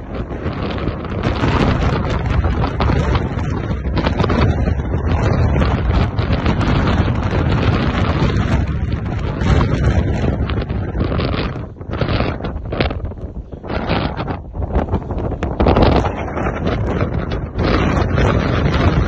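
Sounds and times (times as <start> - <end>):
gale wind buffeting microphone: 0.0 - 19.0.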